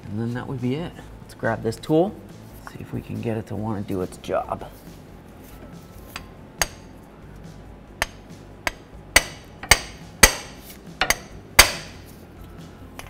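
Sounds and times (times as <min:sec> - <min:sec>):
hammer tapping metal tool: 0:06.1 - 0:06.9, 0:08.0 - 0:12.1.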